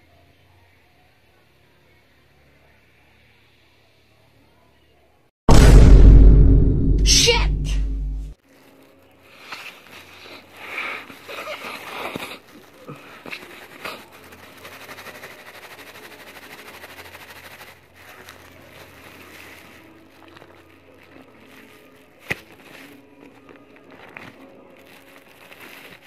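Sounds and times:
plastic bag crinkling: 8.4s - 26.0s.

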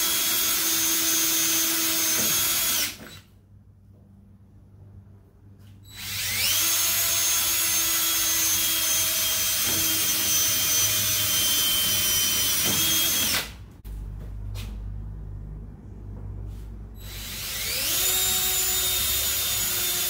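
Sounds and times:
cordless drill whining: 0.0s - 3.3s, 5.9s - 13.6s, 17.0s - 20.0s.

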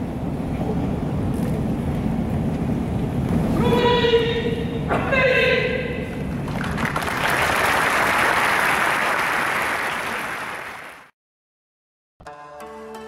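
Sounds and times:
audience applauding: 6.4s - 11.1s.

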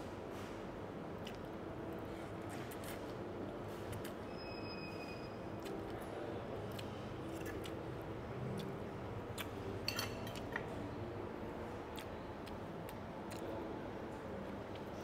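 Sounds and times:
low background hum: 0.0s - 15.0s
cutlery and dishes clinking: 9.8s - 10.7s.

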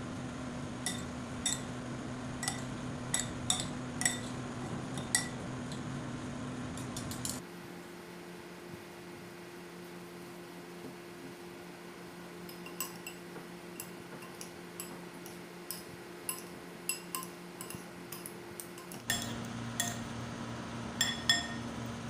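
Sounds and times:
steady low hum: 0.0s - 22.0s
metal cutlery clinking against bowl: 12.5s - 13.2s, 13.8s - 20.0s, 21.0s - 21.6s.

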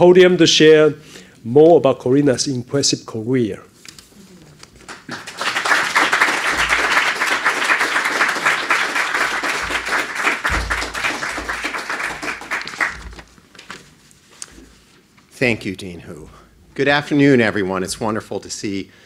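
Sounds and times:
audience clapping: 4.8s - 13.4s.

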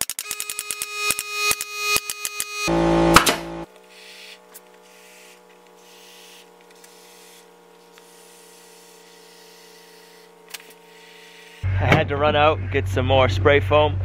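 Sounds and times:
spray foam can hissing: 3.9s - 10.3s.

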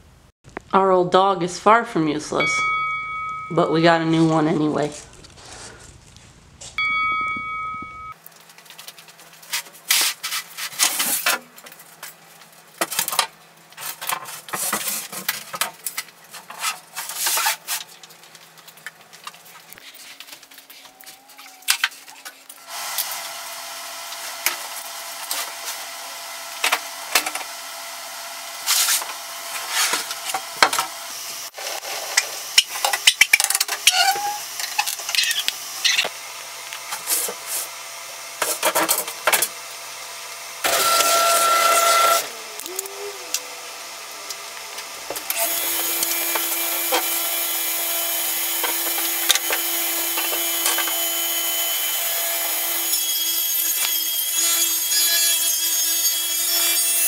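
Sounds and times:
short ringing chime: 2.4s - 3.8s, 6.8s - 8.2s.

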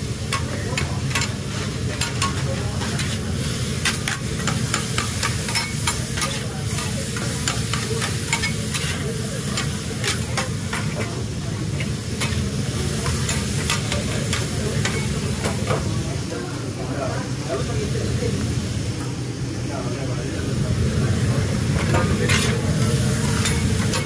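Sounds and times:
meat and vegetables sizzling: 0.0s - 16.4s, 20.4s - 24.0s
metal spatulas chopping and scraping: 0.3s - 1.4s, 2.0s - 3.2s, 3.8s - 9.0s, 9.6s - 11.2s, 21.8s - 22.6s, 23.2s - 24.0s.

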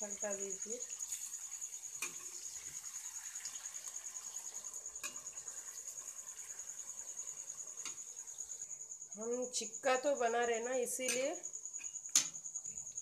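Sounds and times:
chicken frying in oil: 0.0s - 8.7s
cricket chirping: 0.0s - 13.0s.

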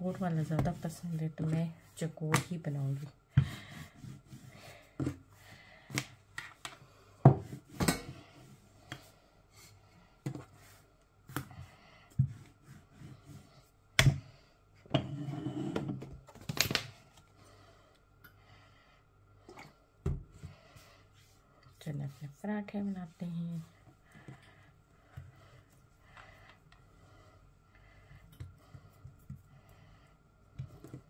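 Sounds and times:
dough rubbing: 0.0s - 5.2s, 10.6s - 13.8s.

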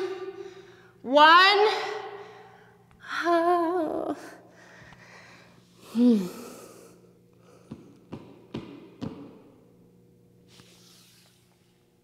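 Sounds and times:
woman heavy breathing: 4.2s - 8.1s
woman groaning exhale: 5.8s - 6.9s.

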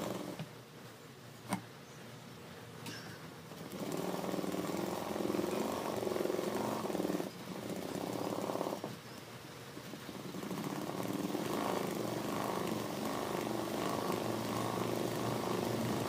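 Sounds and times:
sewing machine stitching: 0.0s - 0.5s, 3.6s - 9.0s, 10.2s - 16.0s.

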